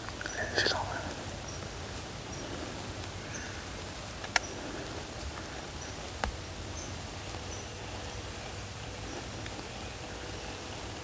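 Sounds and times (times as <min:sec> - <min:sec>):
steady outdoor hiss: 0:00.0 - 0:11.0
sharp clicks: 0:04.2 - 0:04.5.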